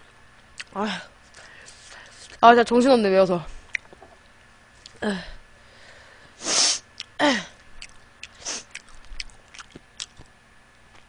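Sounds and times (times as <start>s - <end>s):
woman blowing nose into tissue: 6.4s - 6.8s, 8.4s - 8.7s.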